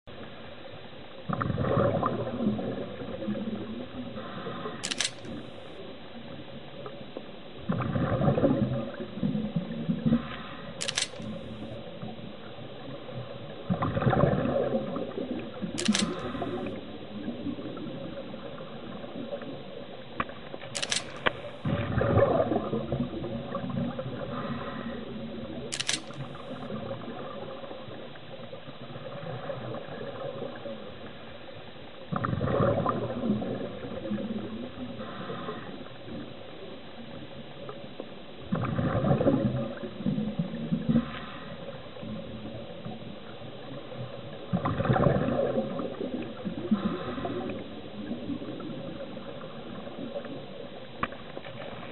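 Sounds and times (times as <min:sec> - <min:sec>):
steady underwater hiss: 0:00.1 - 0:51.9
scuba exhaust bubbles underwater: 0:01.2 - 0:04.8, 0:06.1 - 0:10.8, 0:11.7 - 0:20.7, 0:21.6 - 0:25.7, 0:26.6 - 0:51.9
short sharp clicks: 0:04.8 - 0:05.7, 0:10.8 - 0:11.8, 0:15.8 - 0:16.7, 0:20.8 - 0:21.7, 0:25.7 - 0:26.6.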